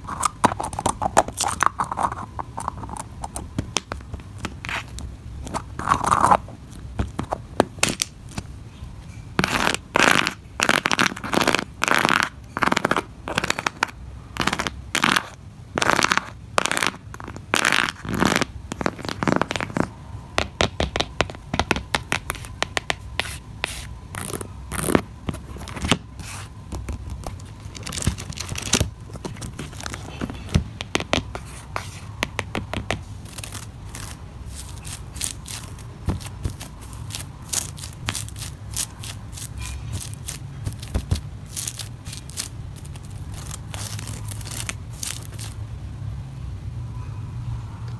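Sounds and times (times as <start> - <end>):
fingernails tapping: 32.2 - 42.5.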